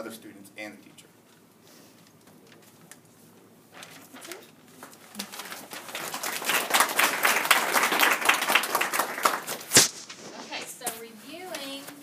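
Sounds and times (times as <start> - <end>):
audience applauding: 5.8 - 9.7.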